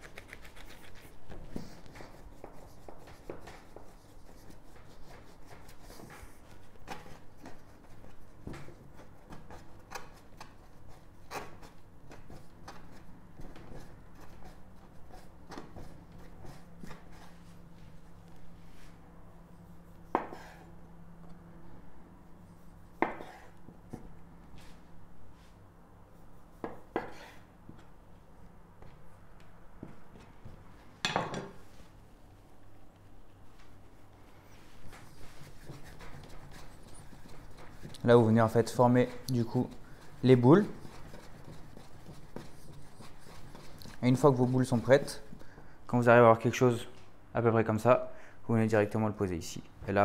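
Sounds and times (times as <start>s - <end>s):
hands kneading dough on board: 0.0s - 20.7s, 22.4s - 28.0s, 33.6s - 45.7s.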